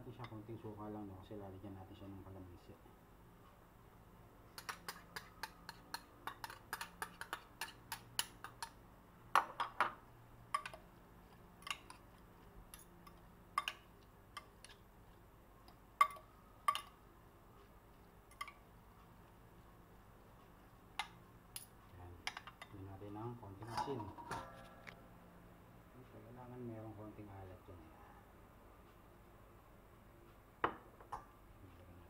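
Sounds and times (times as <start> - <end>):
cutlery clinking against ceramic dish: 4.6 - 8.8, 23.6 - 24.9.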